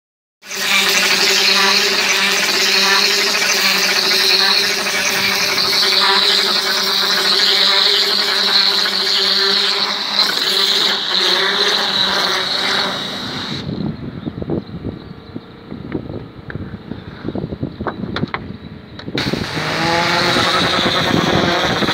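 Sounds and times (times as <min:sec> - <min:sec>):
machine humming: 0:00.5 - 0:16.0, 0:18.9 - 0:21.9
loud even hiss: 0:03.5 - 0:13.8, 0:19.2 - 0:21.9.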